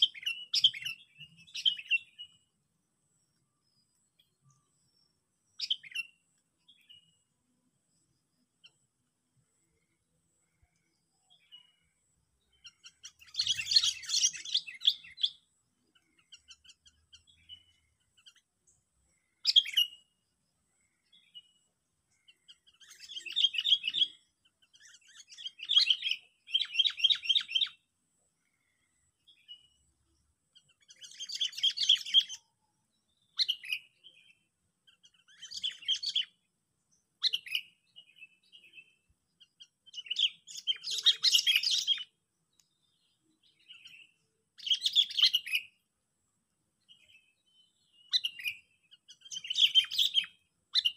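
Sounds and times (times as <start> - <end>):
songbird chattering chirps: 0.0 - 45.9, 46.8 - 50.9.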